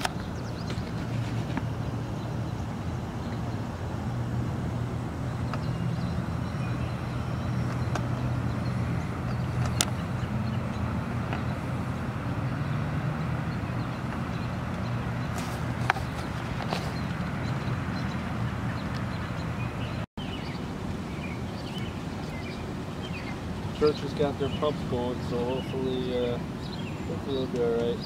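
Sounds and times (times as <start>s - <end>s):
low motor hum: 0.0s - 20.0s.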